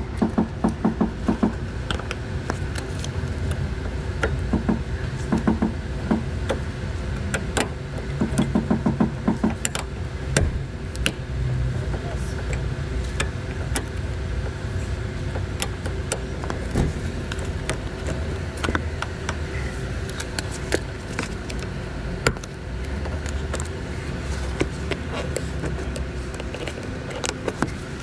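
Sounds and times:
low background hum: 0.0 - 28.0.

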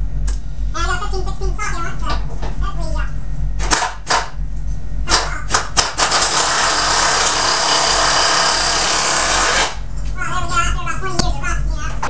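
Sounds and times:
pneumatic impact wrench: 5.1 - 9.8.

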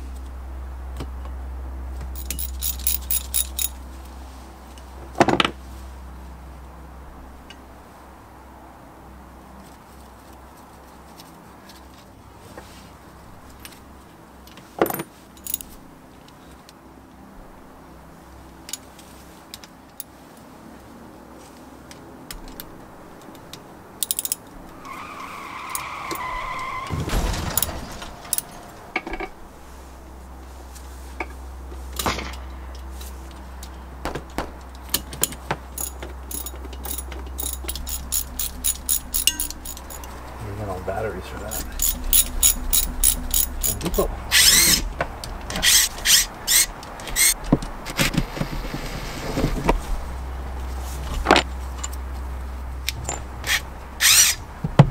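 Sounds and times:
low steady hum: 0.0 - 24.9, 25.8 - 54.9
metallic clicks and clinks of tools: 2.1 - 3.8, 14.8 - 15.8, 24.0 - 24.5, 34.7 - 40.2, 41.5 - 44.7, 52.9 - 53.6
ratchet clicking: 24.0 - 24.4, 35.8 - 40.1, 41.5 - 44.8, 53.4 - 54.4.

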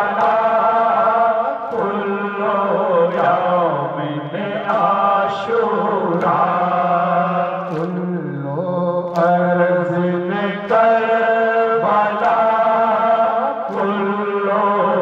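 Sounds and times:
men chanting through microphones: 0.0 - 15.0.

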